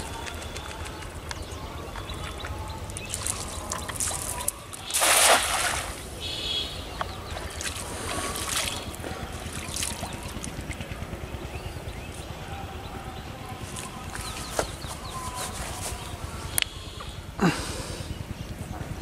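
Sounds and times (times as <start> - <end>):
soft water splashing: 0.0 - 10.9
net splashing into river: 4.0 - 6.1.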